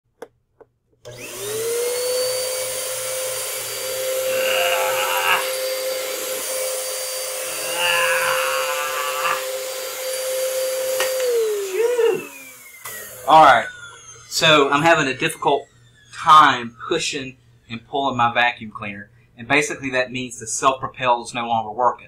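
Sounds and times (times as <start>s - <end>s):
vacuum cleaner motor whining: 1.0s - 17.7s
person groaning: 4.1s - 5.8s, 7.4s - 9.6s, 11.6s - 12.3s.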